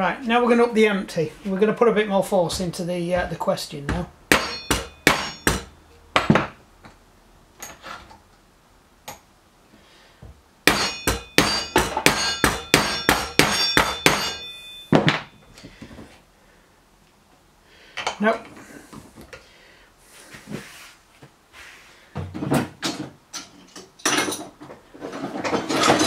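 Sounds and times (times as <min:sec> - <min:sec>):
hammer clanging on steel: 0:03.9 - 0:06.5, 0:10.7 - 0:15.3.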